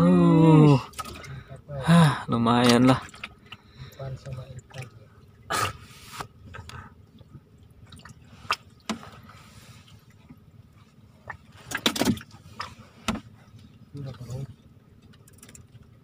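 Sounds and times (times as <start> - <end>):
water splashing and dripping: 2.6 - 5.5, 7.1 - 10.3.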